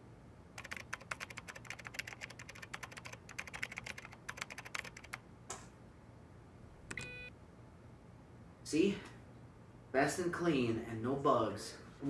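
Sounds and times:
laptop keyboard typing: 0.6 - 5.2, 6.9 - 7.2.

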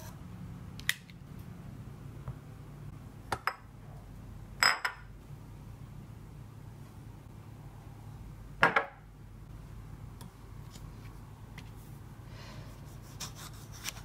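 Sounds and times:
low steady hum: 0.0 - 14.0
ceramic bowl clinking: 4.6 - 5.1.

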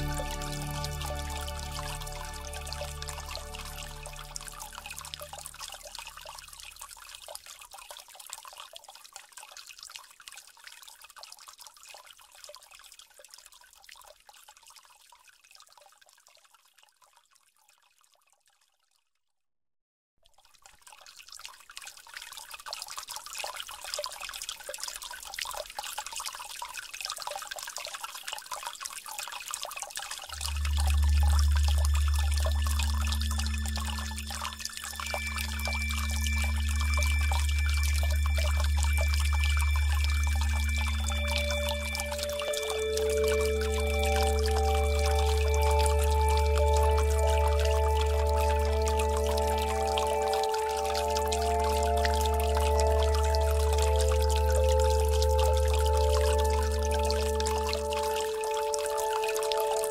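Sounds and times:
deep steady low tone: 0.0 - 6.4, 30.3 - 59.9
trickling pouring water: 0.0 - 19.0, 20.2 - 59.9.

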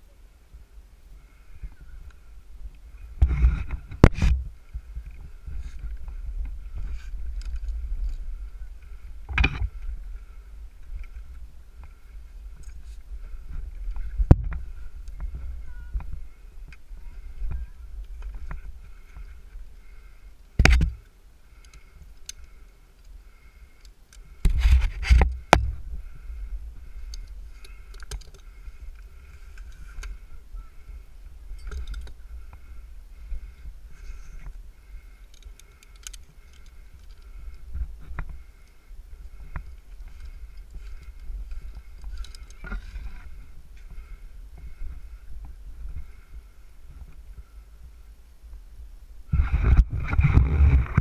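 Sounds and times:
rope and gear scraping and clinking: 39.7 - 43.4.

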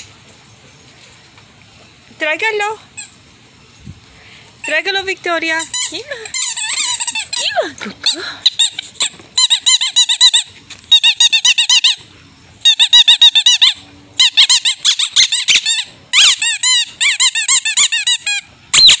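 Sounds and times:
dog's squeaky toy squeaking: 4.6 - 12.0, 12.6 - 19.0.

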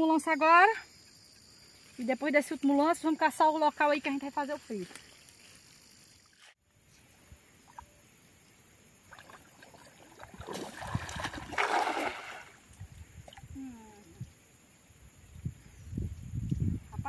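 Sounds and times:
net splashing into water: 9.1 - 13.4.

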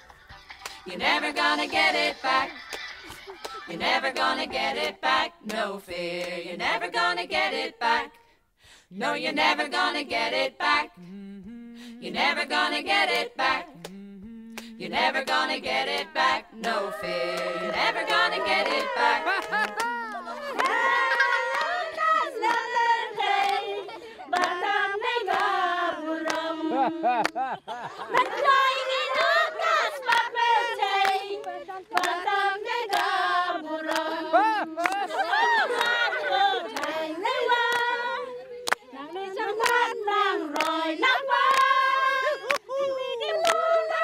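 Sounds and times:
hand claps: 0.0 - 5.6, 13.1 - 20.9, 21.5 - 22.7, 23.4 - 23.7, 24.4 - 24.6, 25.3 - 25.5, 26.2 - 26.4, 27.2 - 27.6, 31.0 - 32.3, 32.9 - 33.1, 33.9 - 34.1, 34.8 - 36.0, 36.7 - 37.0, 38.6 - 38.9, 39.6 - 39.8, 40.5 - 40.8, 41.5 - 41.8, 42.5 - 42.7, 43.4 - 43.6
sung chorus: 0.6 - 44.0
voices singing long notes: 0.8 - 2.6, 9.0 - 44.0
group cheering and calling out: 16.8 - 22.5, 34.2 - 36.9
sharp clap-like beat: 31.9 - 32.3.

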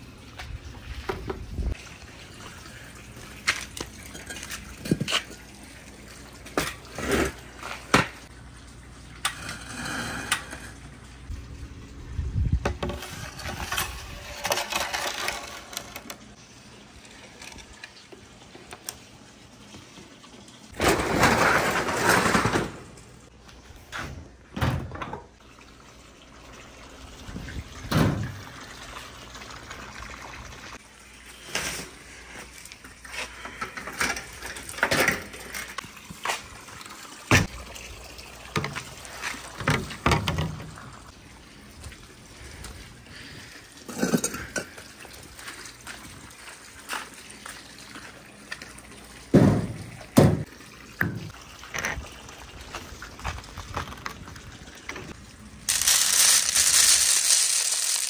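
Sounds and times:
marbles clacking: 55.7 - 58.0
marbles rolling down wooden run: 55.7 - 58.0.

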